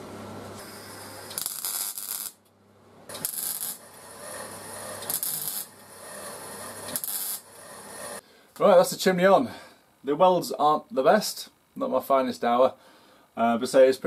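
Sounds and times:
welder crackling: 0.4s - 2.5s, 3.1s - 8.8s.

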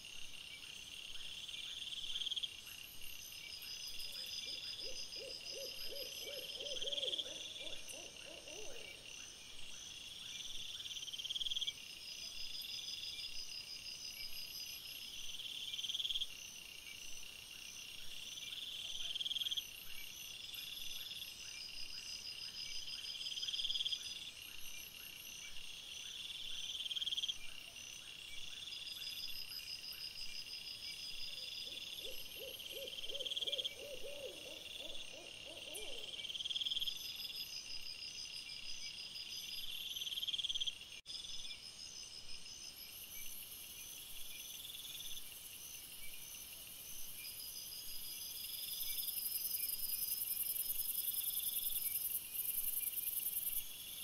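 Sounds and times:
owl hooting: 4.8s - 9.0s, 31.6s - 36.2s.

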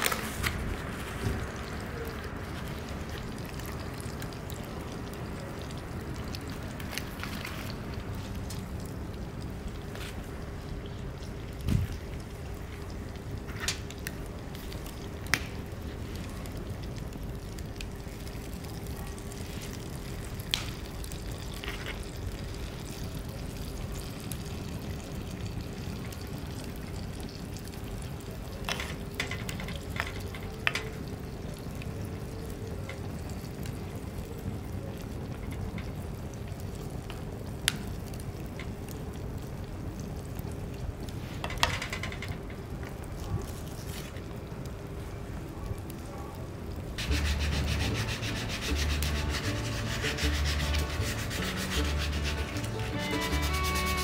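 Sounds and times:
oil sizzling in a pan: 47.0s - 54.0s.

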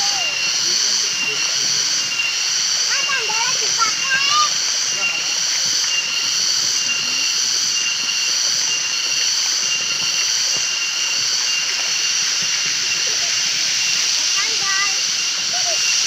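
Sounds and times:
high-pitched drone: 0.0s - 16.0s
waterfall rushing over rocks: 8.3s - 16.0s.

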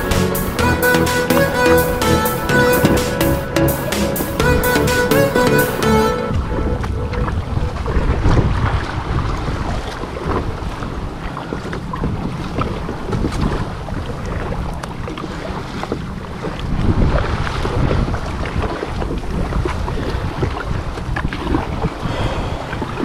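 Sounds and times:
water splashing around kayak: 0.0s - 23.0s
wind buffeting the microphone: 6.3s - 23.0s.

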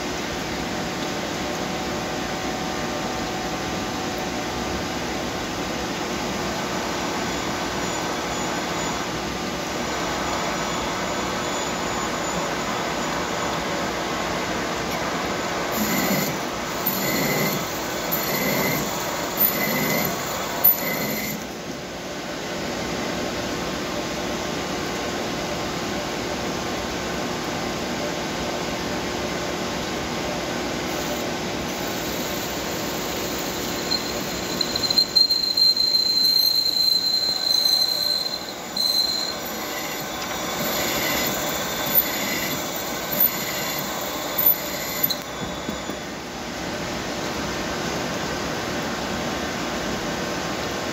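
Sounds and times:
lathe machine noise: 6.6s - 21.6s, 30.8s - 46.5s
high-pitched tool squeal: 15.7s - 21.6s, 30.9s - 46.3s
short chirps of cutting tool: 15.8s - 21.5s.

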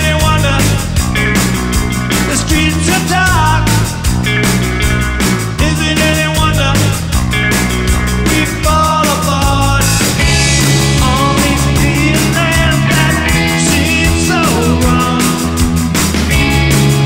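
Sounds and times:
bass guitar: 0.0s - 17.0s
drum kit beat: 0.0s - 17.0s
electric guitars: 0.0s - 17.0s.

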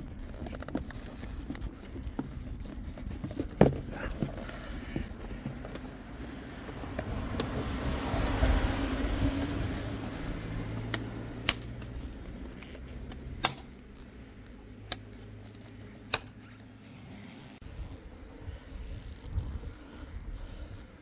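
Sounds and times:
sharp plastic clicks: 10.8s - 14.0s, 16.0s - 16.4s.

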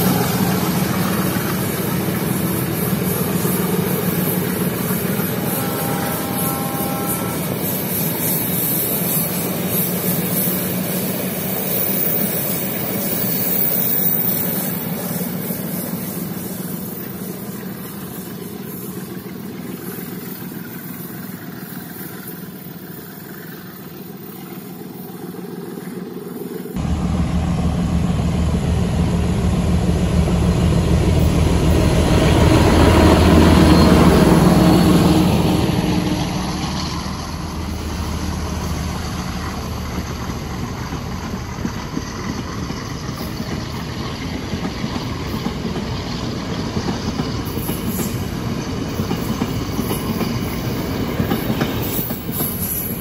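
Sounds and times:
diesel locomotive passing: 0.0s - 53.0s
train coaches rumbling: 0.0s - 53.0s
wheels clacking over rail joints: 39.0s - 53.0s.

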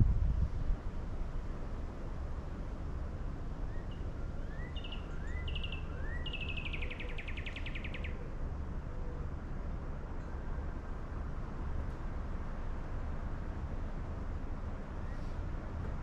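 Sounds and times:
low steady rumble: 0.0s - 16.0s
songbird singing: 2.0s - 9.5s.

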